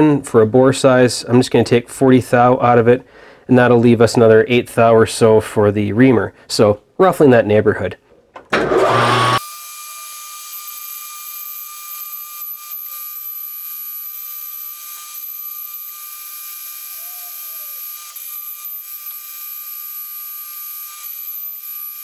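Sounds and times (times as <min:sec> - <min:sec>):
metal lathe boring bar whine: 0:08.7 - 0:22.0.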